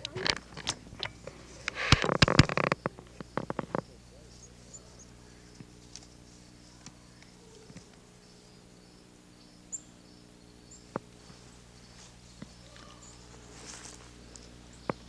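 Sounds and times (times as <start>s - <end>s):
sharp clicks: 0.0s - 4.0s
steady low hum: 0.0s - 15.0s.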